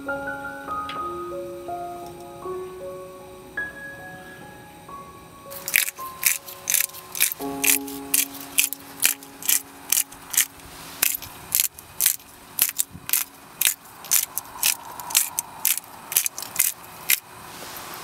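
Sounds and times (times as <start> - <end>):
pepper mill grinding: 5.5 - 18.0.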